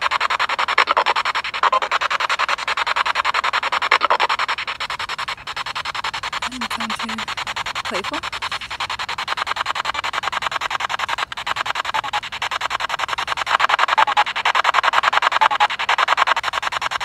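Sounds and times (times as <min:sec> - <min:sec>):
fluttering radio static: 0:00.7 - 0:09.1
fragments of broadcast sound: 0:06.4 - 0:07.3, 0:07.9 - 0:08.8.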